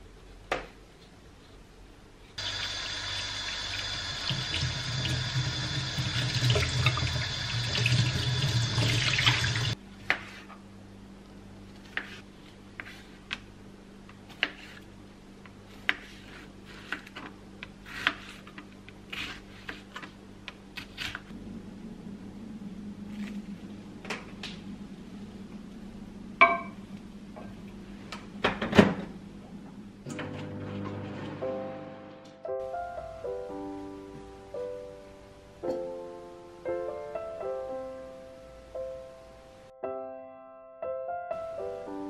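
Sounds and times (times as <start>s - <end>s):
faint steady hum: 0.0s - 39.8s
tap water running into sink: 2.4s - 9.8s.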